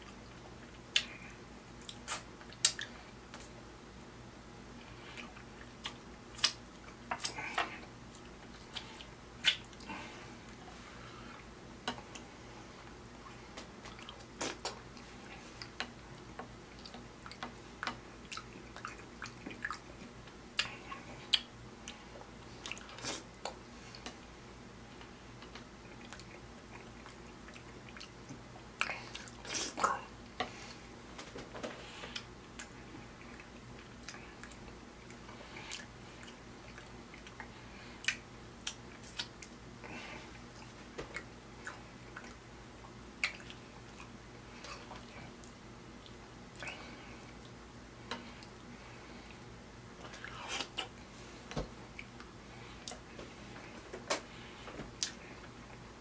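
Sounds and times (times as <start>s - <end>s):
person chewing with wet mouth noises: 0.0s - 3.5s, 4.8s - 10.6s, 11.2s - 24.2s, 25.0s - 30.8s, 31.9s - 49.4s, 50.0s - 51.1s, 54.4s - 55.9s
mouth smacks and clicks: 1.8s - 3.5s, 5.8s - 7.4s, 8.1s - 9.9s, 35.7s - 39.6s, 43.2s - 44.1s.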